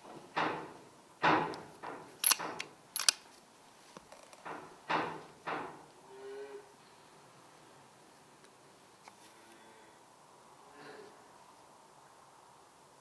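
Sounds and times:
sharp metallic clicks: 0:01.4 - 0:03.2.

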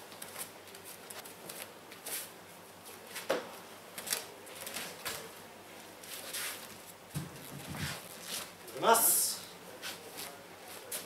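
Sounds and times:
cloth uniforms rustling: 0:00.0 - 0:08.7
bare feet on mats: 0:06.0 - 0:08.6.

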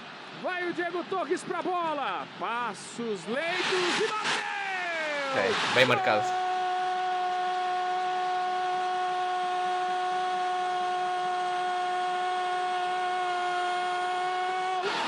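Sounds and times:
commentator's long goal cry: 0:05.6 - 0:06.5.

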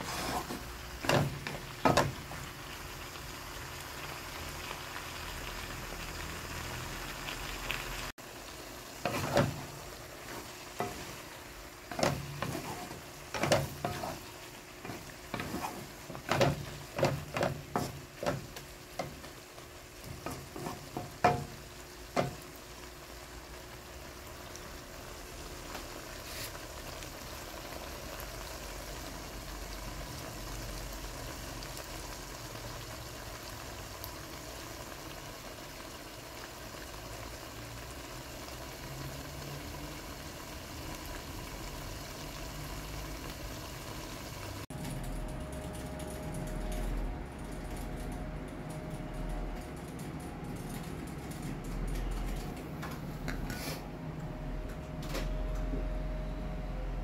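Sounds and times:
food sizzling in a pan: 0:00.0 - 0:44.7
utensil knocking against pan: 0:20.3 - 0:21.5.

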